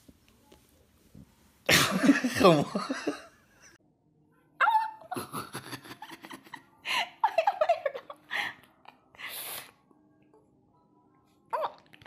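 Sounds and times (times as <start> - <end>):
person giggling: 1.7 - 3.3, 5.0 - 8.2.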